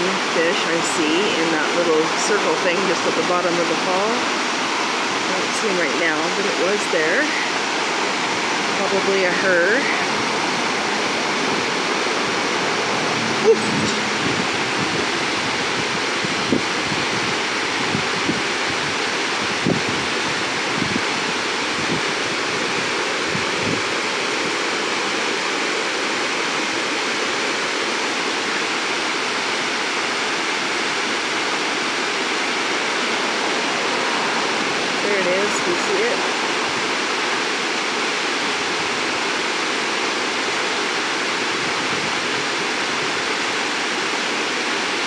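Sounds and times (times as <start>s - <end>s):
creek water rushing over rocks: 0.0s - 45.0s.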